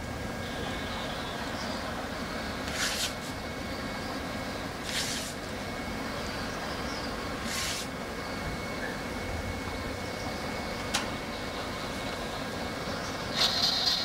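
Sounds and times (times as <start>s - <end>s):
equipment hum and hiss: 0.0s - 14.0s
short bursts of hissing: 4.8s - 5.4s, 7.4s - 7.9s.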